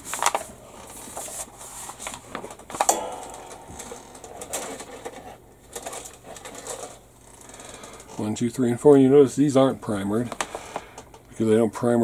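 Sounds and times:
paper rustling: 0.0 - 2.9
faint ring: 2.9 - 5.4.

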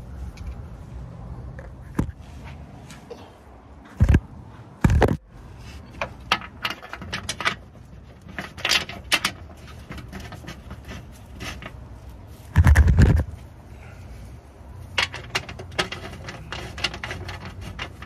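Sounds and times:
bolts and tools rattling: 4.0 - 13.4, 14.8 - 18.0.

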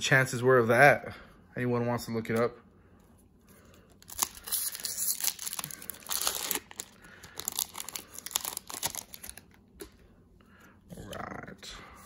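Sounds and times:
foil wrapper crinkling and tearing: 4.0 - 9.6.

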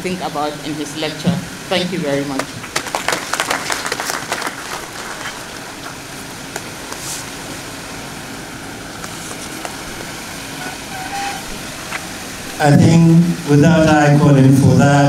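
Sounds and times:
audience applauding: 2.3 - 6.0.

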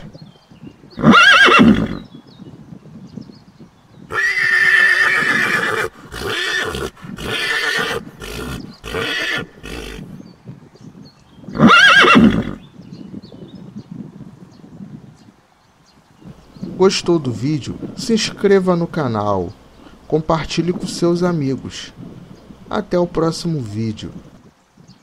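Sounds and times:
horse whinnying: 1.0 - 2.0, 4.1 - 10.2, 11.5 - 12.6.

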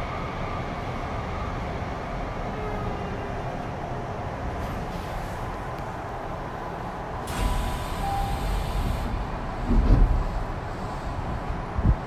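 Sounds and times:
train running noise: 0.0 - 12.0
air hissing from brakes: 7.2 - 9.3.

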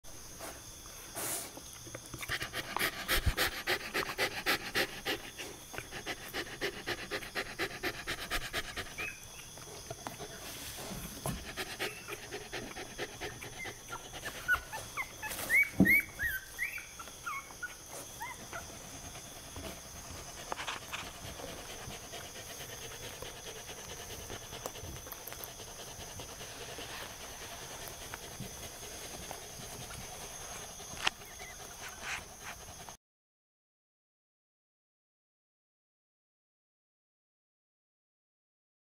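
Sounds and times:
puppy breathing quickly: 0.6 - 33.0
puppy squeaks: 13.7 - 18.4.

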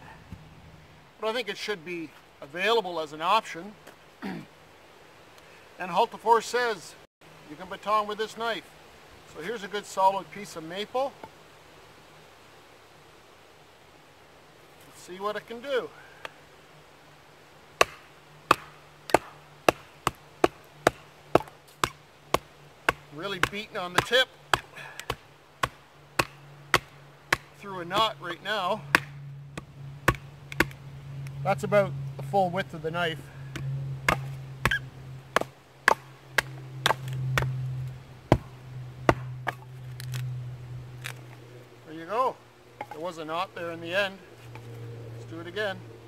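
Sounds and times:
sharp wooden knocks: 17.8 - 28.1, 28.9 - 30.8, 33.5 - 37.5.

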